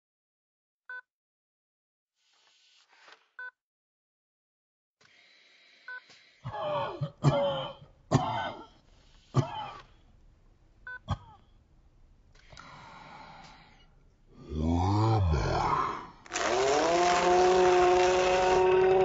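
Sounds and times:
man coughing and clearing throat: 0:06.5 - 0:08.8, 0:09.4 - 0:09.9, 0:11.1 - 0:11.5.

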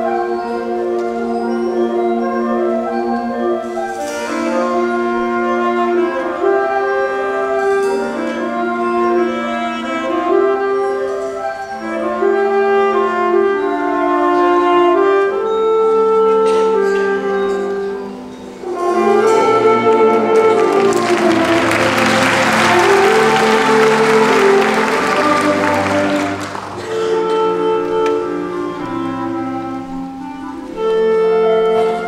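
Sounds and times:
concert band playing held chords: 0:18.6 - 0:28.5.

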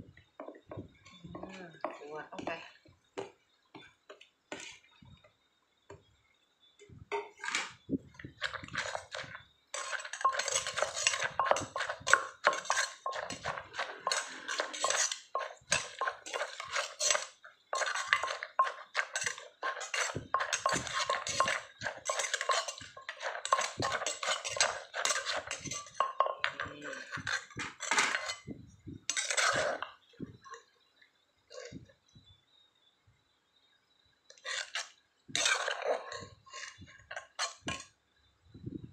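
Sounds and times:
metal spoon scraping mortar: 0:07.4 - 0:28.5, 0:29.1 - 0:30.0, 0:34.3 - 0:37.9
wooden pestle pounding: 0:08.4 - 0:27.8.

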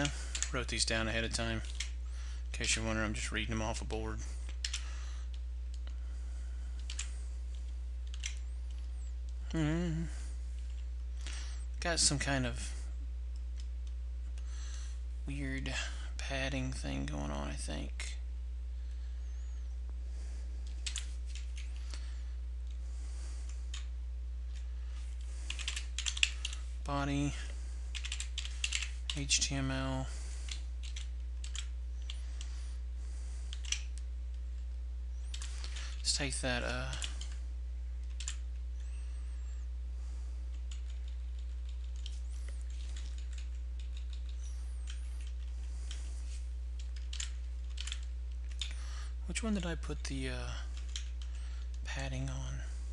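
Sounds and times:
steady low hum: 0:00.0 - 0:52.9
keyboard typing: 0:25.5 - 0:26.6, 0:27.9 - 0:29.2, 0:30.5 - 0:32.2, 0:46.8 - 0:48.8.

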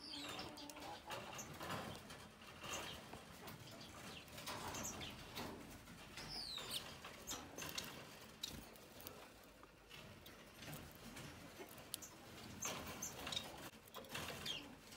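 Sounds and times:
finch calls and chirps: 0:00.0 - 0:01.6, 0:03.7 - 0:05.3, 0:06.2 - 0:08.6.

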